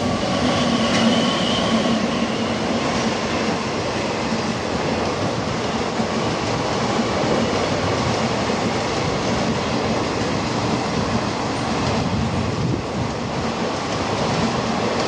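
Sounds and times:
train wheels on rails: 0:00.0 - 0:15.0.

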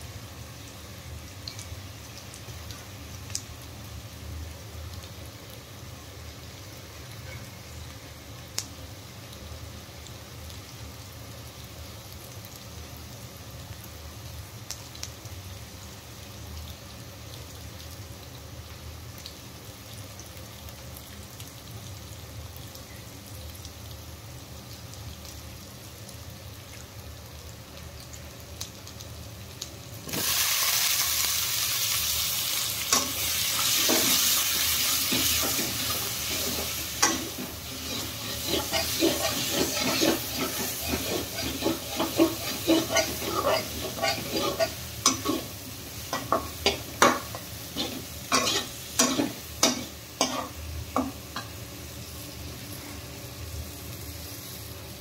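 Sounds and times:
loud sizzle in hot oil: 0:00.0 - 0:55.0
potatoes frying in oil: 0:00.0 - 0:55.0
metal spatula scraping pan: 0:35.1 - 0:45.5, 0:47.8 - 0:50.5.

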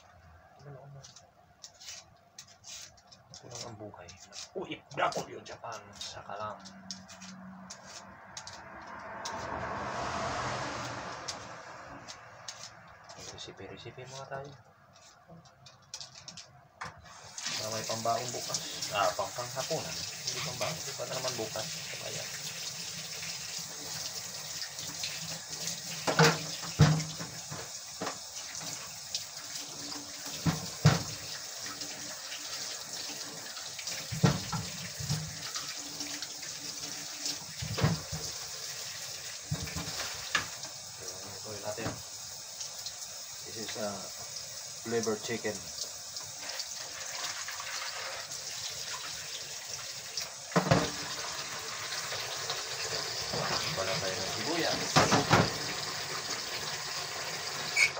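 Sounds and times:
hands washing food in water: 0:17.1 - 0:44.2
tap running into sink: 0:26.0 - 0:28.9, 0:29.6 - 0:32.0, 0:33.0 - 0:38.5, 0:39.4 - 0:40.8, 0:41.8 - 0:42.1, 0:50.5 - 0:56.7.

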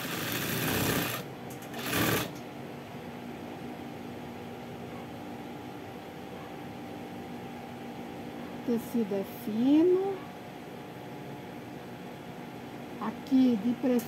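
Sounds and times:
sewing machine stitching: 0:00.0 - 0:02.4.

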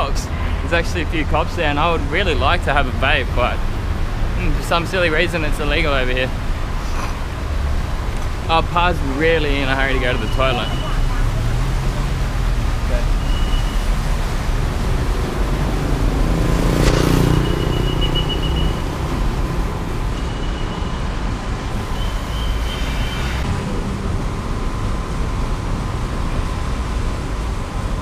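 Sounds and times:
road traffic noise: 0:00.0 - 0:28.0
vehicle passing: 0:13.8 - 0:20.1.

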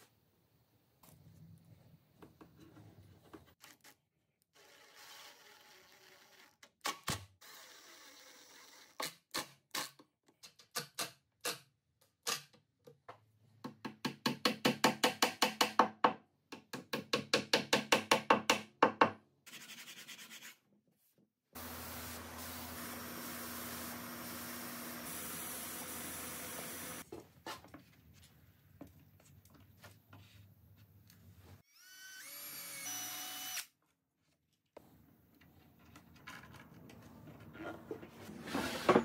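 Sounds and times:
drill motor hum: 0:23.8 - 0:27.0.

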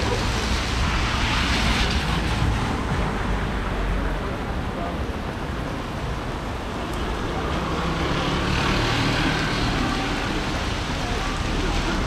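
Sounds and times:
traffic noise: 0:00.0 - 0:12.0
vehicle passing: 0:06.6 - 0:12.0.

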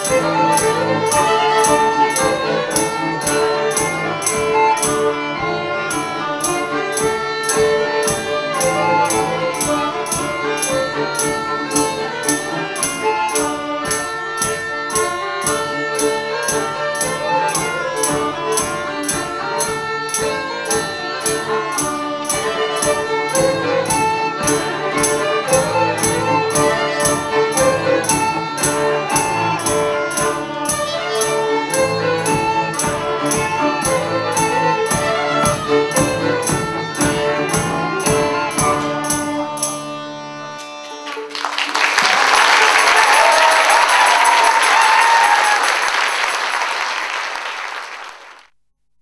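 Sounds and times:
fast percussion beat: 0:00.0 - 0:39.9
folk band playing a tune: 0:00.0 - 0:46.6
audience applauding: 0:40.8 - 0:48.5.

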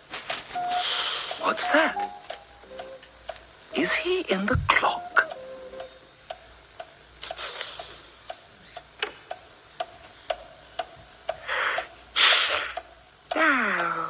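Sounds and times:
breathy hisses: 0:00.7 - 0:01.5, 0:07.2 - 0:08.7, 0:11.4 - 0:14.0
grandfather clock ticking: 0:01.3 - 0:12.0.

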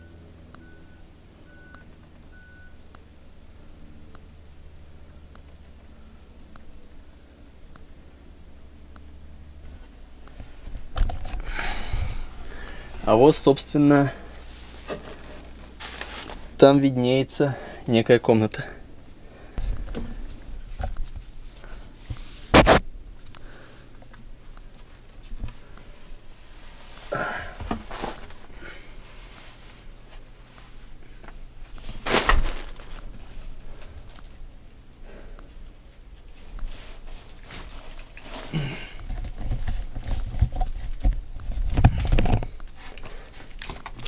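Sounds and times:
bumps and clothing rustling: 0:09.6 - 0:16.7, 0:24.0 - 0:34.4, 0:35.8 - 0:44.0
person grunting: 0:27.1 - 0:27.6, 0:38.5 - 0:39.0.

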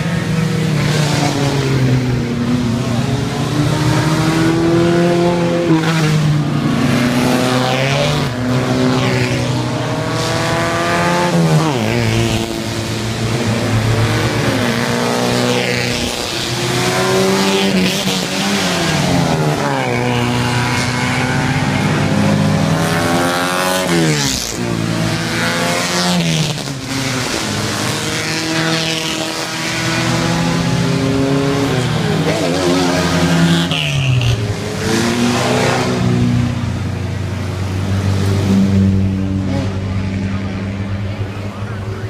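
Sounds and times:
cars accelerating past: 0:00.0 - 0:42.0.

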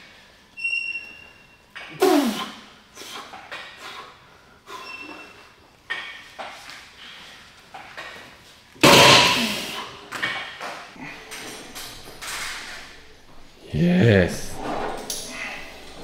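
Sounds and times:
gym equipment clanking: 0:08.8 - 0:16.0.

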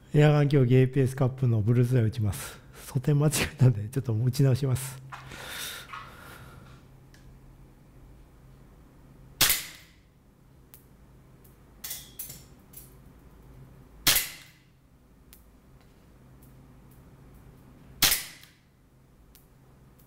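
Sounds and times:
airsoft pistol shots cracking: 0:09.4 - 0:10.0, 0:14.0 - 0:14.6, 0:18.0 - 0:18.6.

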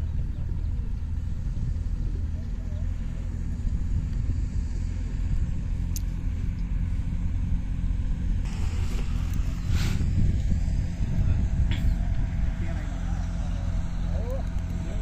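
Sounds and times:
wind buffeting microphone: 0:00.0 - 0:15.0
burst of hiss: 0:08.4 - 0:10.2.

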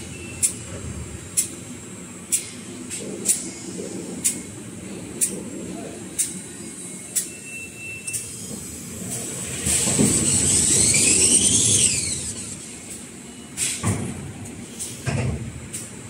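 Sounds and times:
whine rising and falling: 0:09.5 - 0:13.0.

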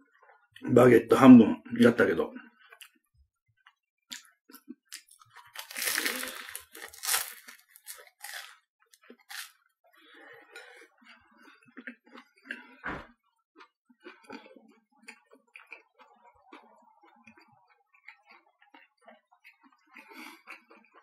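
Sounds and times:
chewing with crunches: 0:02.5 - 0:21.0
crusty bread crackling: 0:05.0 - 0:09.5.

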